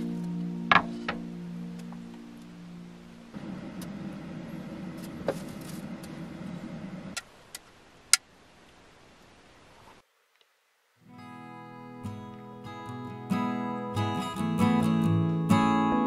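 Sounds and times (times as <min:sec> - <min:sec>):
low steady rumble: 0:00.0 - 0:07.2.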